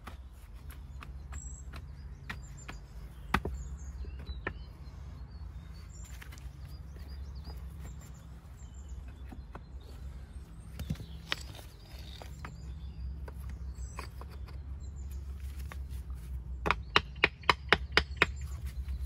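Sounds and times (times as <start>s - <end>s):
birds chirping: 0.0s - 19.0s
stones clicking and knocking: 10.7s - 14.6s.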